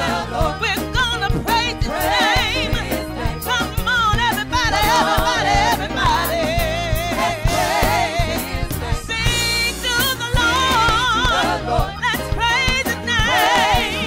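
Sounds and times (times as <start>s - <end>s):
band playing steady beat: 0.0s - 14.0s
woman singing with vibrato: 3.4s - 14.0s.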